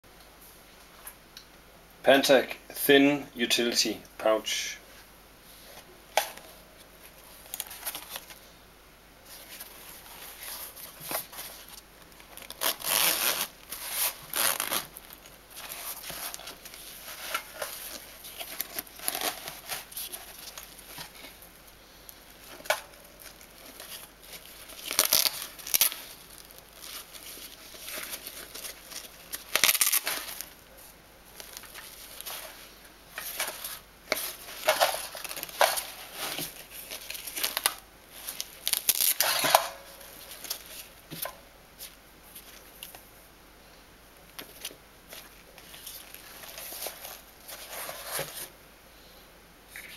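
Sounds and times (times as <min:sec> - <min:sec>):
nylon fabric rustling: 0:09.2 - 0:21.4, 0:22.4 - 0:30.6.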